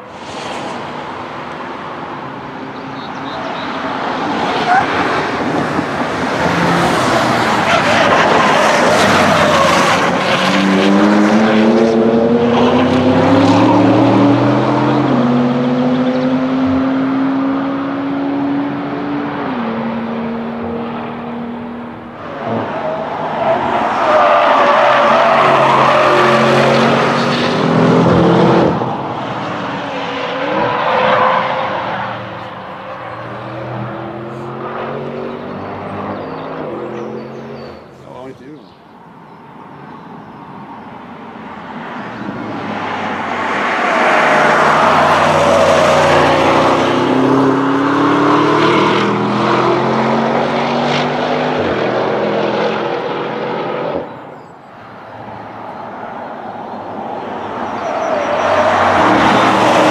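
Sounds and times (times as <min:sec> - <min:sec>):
car engine accelerating: 0:42.1 - 0:54.0.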